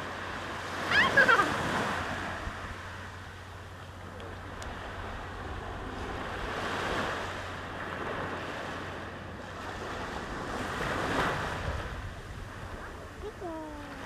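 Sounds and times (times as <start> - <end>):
waves washing on sand beach: 0.0 - 14.0
wind buffeting microphone: 4.4 - 14.0.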